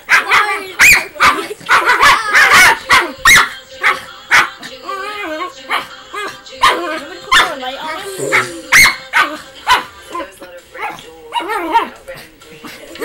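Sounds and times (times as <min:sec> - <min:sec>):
small dog barking rapidly: 0:00.0 - 0:04.5, 0:06.6 - 0:07.5, 0:08.3 - 0:09.9.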